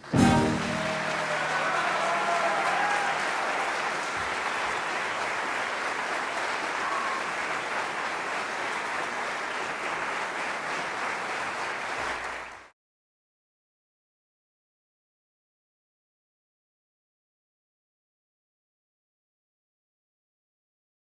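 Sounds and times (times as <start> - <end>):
orchestra last note: 0.0 - 1.9
audience applauding: 0.0 - 12.7.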